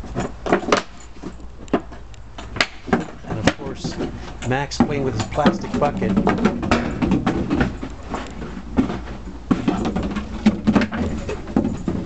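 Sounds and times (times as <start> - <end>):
plastic bucket knocking and clattering: 2.6 - 12.0.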